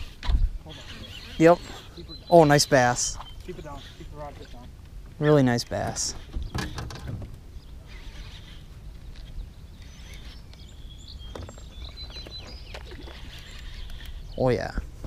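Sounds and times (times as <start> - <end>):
wind rumbling on microphone: 0.0 - 2.3, 5.8 - 15.0
faint high bird calls: 0.0 - 14.7.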